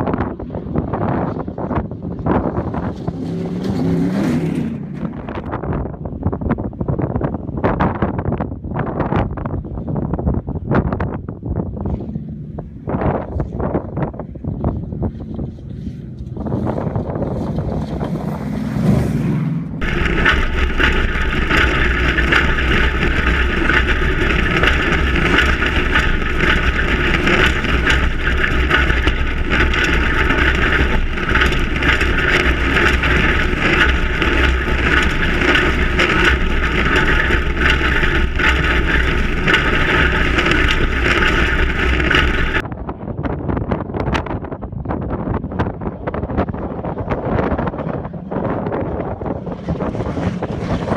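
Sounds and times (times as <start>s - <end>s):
truck engine rumble: 0.0s - 6.2s, 11.2s - 42.7s
wind rush: 0.0s - 50.9s
suspension clattering over bumps: 0.8s - 5.6s, 15.3s - 42.6s.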